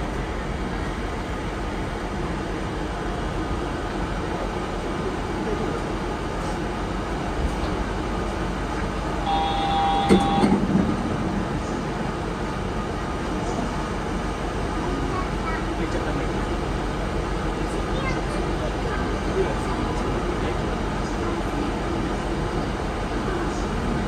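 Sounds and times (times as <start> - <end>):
train running: 0.0 - 24.0
multi-pitch tone: 9.2 - 10.6.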